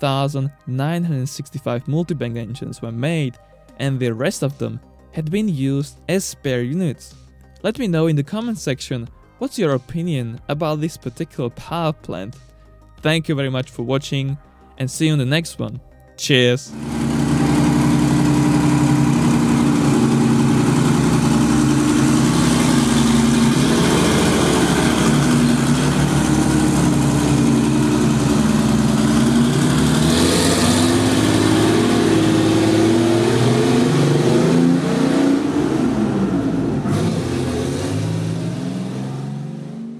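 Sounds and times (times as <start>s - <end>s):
large piston engine revving: 16.7s - 39.9s.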